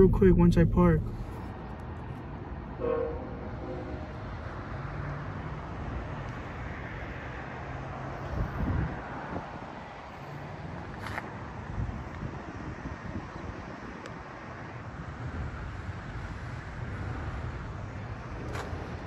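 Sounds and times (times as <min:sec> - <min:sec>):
low thumps: 0:00.0 - 0:01.6
pickup engine and road noise: 0:00.0 - 0:19.0
wind on microphone: 0:08.2 - 0:09.6.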